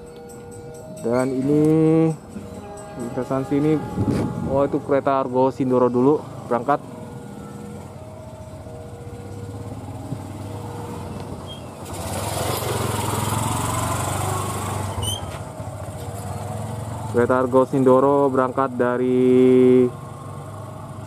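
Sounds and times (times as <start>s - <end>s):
small motorcycle riding past: 5.9s - 18.1s, 19.1s - 21.0s.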